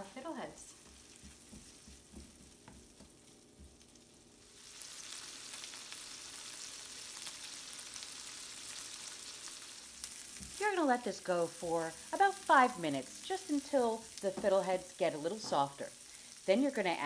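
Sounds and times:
butter sizzling: 0:00.0 - 0:17.0
spatula knocking in skillet: 0:00.8 - 0:04.2, 0:10.1 - 0:10.6, 0:13.5 - 0:15.8.

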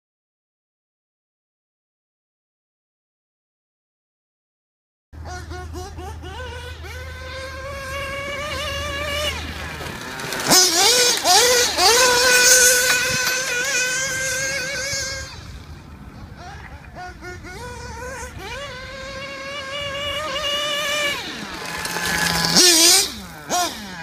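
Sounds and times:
model car engine revving: 0:05.2 - 0:24.0.

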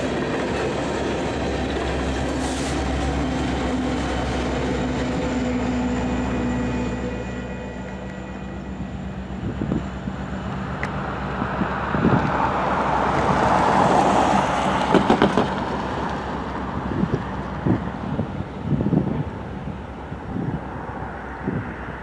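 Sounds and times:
wind buffeting microphone: 0:09.1 - 0:22.0.

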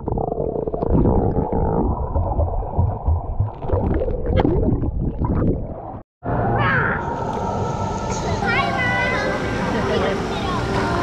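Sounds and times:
muffled underwater rumbling: 0:00.0 - 0:06.0
pool noise above water: 0:06.3 - 0:11.0.

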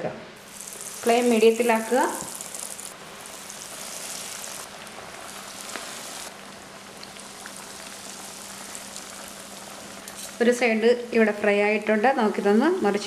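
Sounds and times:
cutlets sizzling in hot oil: 0:00.4 - 0:10.8.

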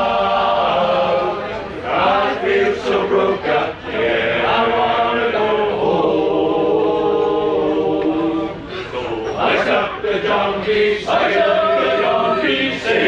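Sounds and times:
male choir singing in harmony: 0:00.0 - 0:13.0.

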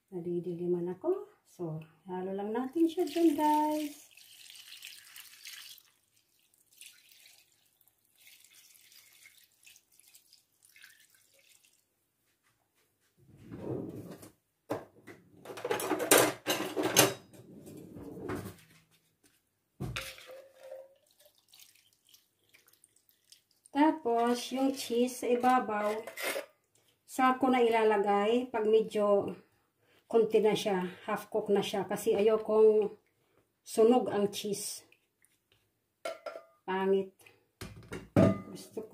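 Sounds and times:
sauce pouring: 0:03.0 - 0:11.9, 0:19.8 - 0:23.8
spoon scraping pot: 0:25.3 - 0:26.5.

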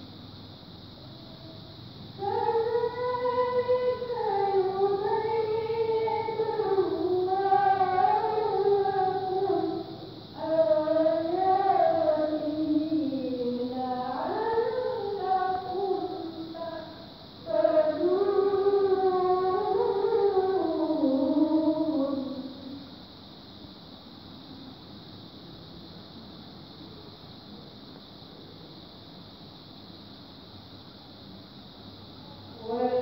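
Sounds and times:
woman reciting melodically: 0:01.1 - 0:23.0, 0:31.8 - 0:33.0.

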